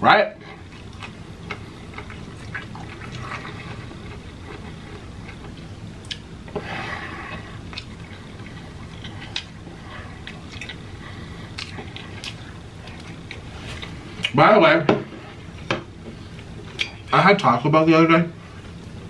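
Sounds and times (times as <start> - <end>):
person chewing food: 0.5 - 14.4.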